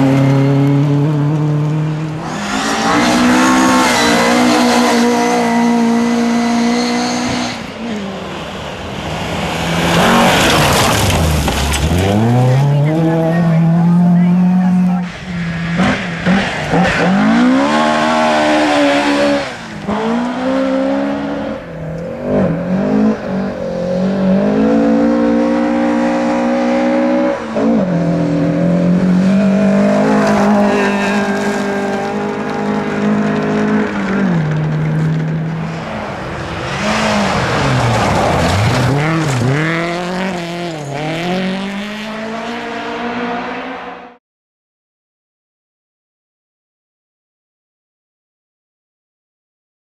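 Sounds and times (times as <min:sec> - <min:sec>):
rally car engines revving: 0:00.0 - 0:44.2.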